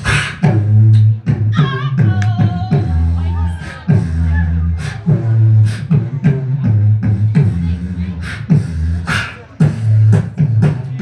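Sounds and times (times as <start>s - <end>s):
vocal kick and snare sounds: 0.0s - 2.9s
beatboxer humming bass line: 0.0s - 11.0s.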